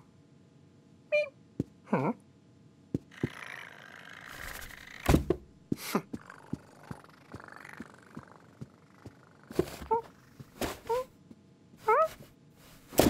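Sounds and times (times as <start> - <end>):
kitten mewing: 5.8 - 11.1.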